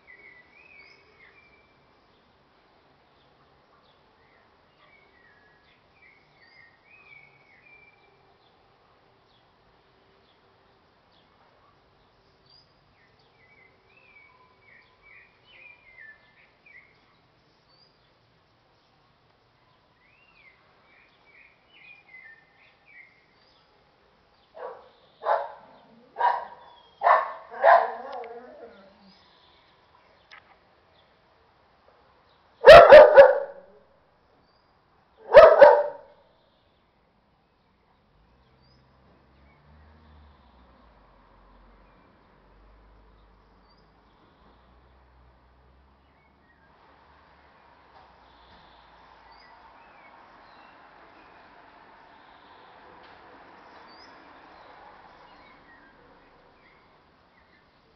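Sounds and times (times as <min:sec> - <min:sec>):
dog barking: 0:24.6 - 0:28.9, 0:32.6 - 0:33.7, 0:35.2 - 0:36.2
background hiss: 0:40.5 - 0:57.9.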